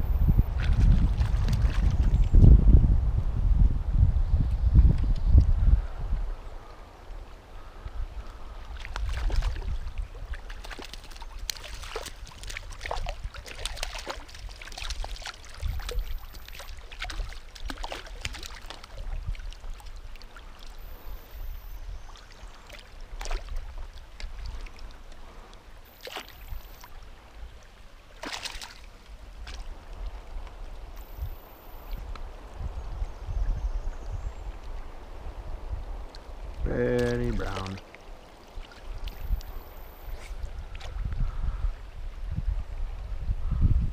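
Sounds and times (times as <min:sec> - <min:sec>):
river water washing: 0:00.0 - 0:02.4, 0:06.4 - 0:33.0, 0:34.4 - 0:41.1
low microphone rumble: 0:00.0 - 0:06.6
fish thrashing and splashing: 0:08.7 - 0:20.9, 0:22.2 - 0:24.8, 0:28.2 - 0:29.7.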